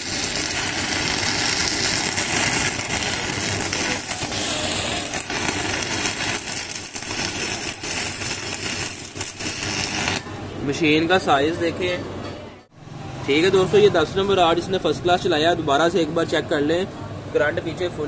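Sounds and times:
welding arc crackling: 0:00.0 - 0:11.2.

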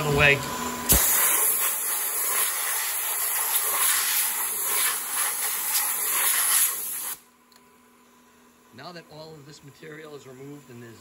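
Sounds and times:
air blow gun hissing: 0:00.9 - 0:07.2.

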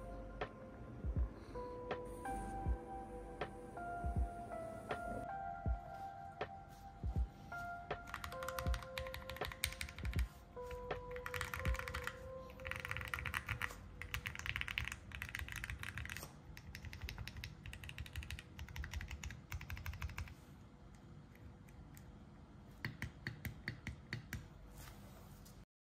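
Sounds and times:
mechanical keyboard typing: 0:08.0 - 0:20.4.

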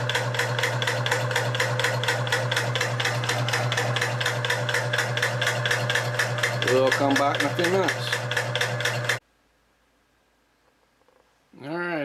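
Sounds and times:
air compressor pistons clattering: 0:00.0 - 0:09.2
motor hum: 0:00.0 - 0:09.2.

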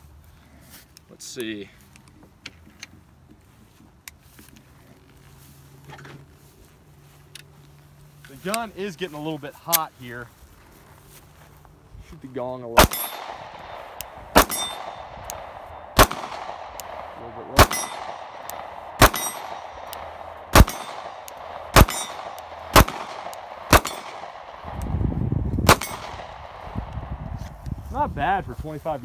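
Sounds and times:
pistol shots: 0:12.8 - 0:24.9, 0:25.6 - 0:27.2
steel gong target ringing: 0:14.4 - 0:15.1, 0:17.6 - 0:18.2, 0:19.0 - 0:19.8, 0:21.7 - 0:22.4.

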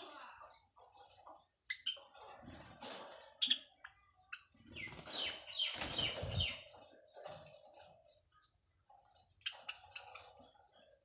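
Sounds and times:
sparrows chirping: 0:00.0 - 0:11.0
wings flapping and fluttering: 0:04.5 - 0:08.2.

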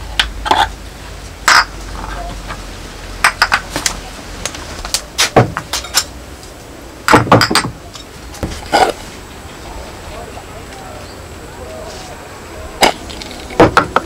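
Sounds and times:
glass jars clinking: 0:01.5 - 0:01.8, 0:07.1 - 0:08.1.

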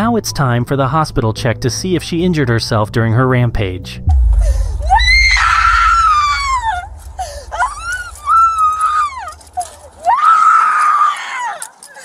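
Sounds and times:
woman screaming: 0:04.8 - 0:06.9, 0:07.5 - 0:11.7.

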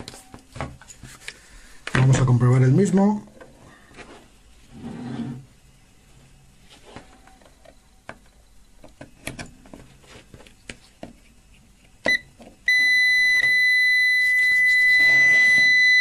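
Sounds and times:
multimeter continuity beep: 0:12.0 - 0:16.0.

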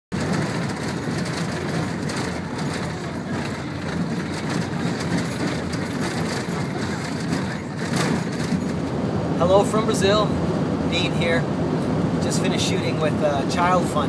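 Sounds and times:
knocks and rattles: 0:00.1 - 0:08.9
engine and tyre rumble: 0:00.1 - 0:14.0.

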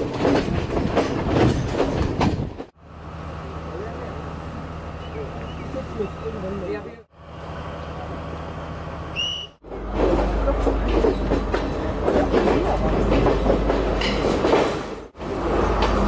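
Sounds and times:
carriages rattling: 0:00.0 - 0:02.7, 0:09.6 - 0:16.0
train rumbling: 0:00.0 - 0:16.0.

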